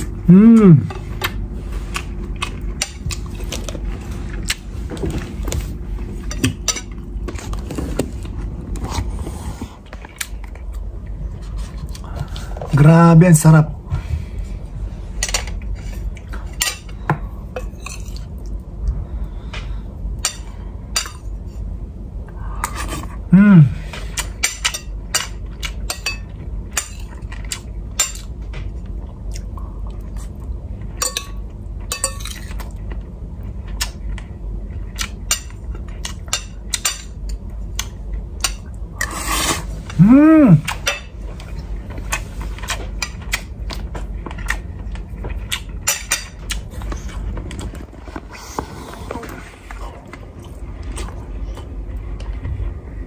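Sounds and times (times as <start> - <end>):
cutlery clinking on plates: 31.0 - 32.6
chewing: 40.6 - 52.5.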